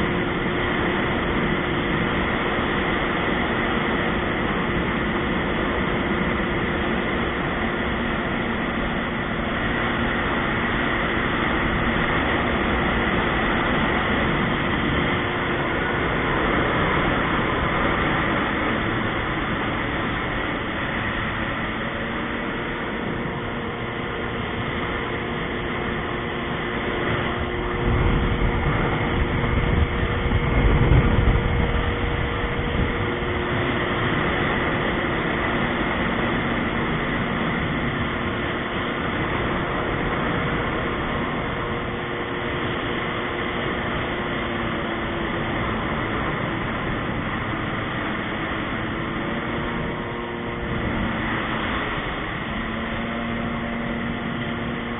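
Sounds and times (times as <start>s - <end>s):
jet ski engine drone: 0.0s - 54.9s
rushing wind and water: 0.0s - 54.9s
low rumble: 7.9s - 44.1s.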